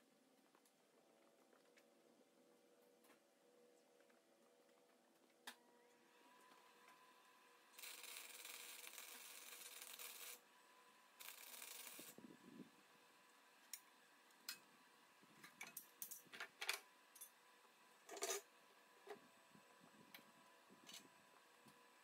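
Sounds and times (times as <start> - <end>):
welder arc crackling hiss: 7.7 - 10.4, 11.2 - 12.7.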